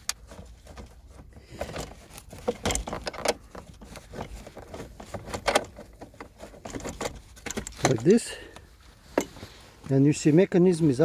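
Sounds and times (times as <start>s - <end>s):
metallic clicks and rattles: 0.0s - 8.3s.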